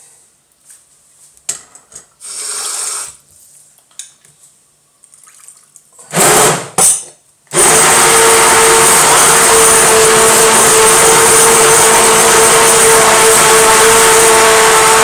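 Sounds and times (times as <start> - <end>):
liquid pouring into jug: 5.0 - 5.8
stick blender running: 6.1 - 6.7, 7.5 - 15.0.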